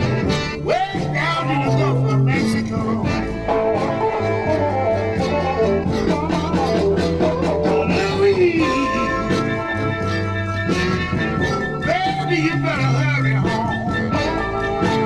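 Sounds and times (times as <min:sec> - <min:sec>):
blues band playing: 0:00.0 - 0:15.0
lead guitar sliding: 0:00.0 - 0:15.0.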